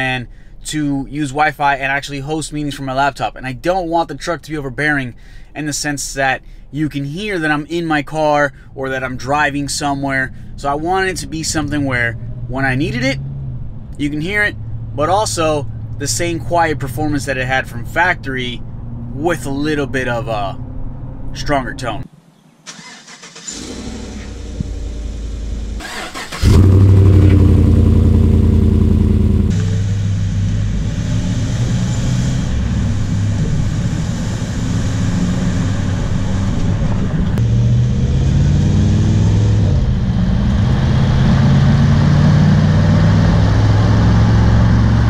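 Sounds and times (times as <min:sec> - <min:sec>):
engine exhaust: 0:08.5 - 0:22.0, 0:22.7 - 0:45.0.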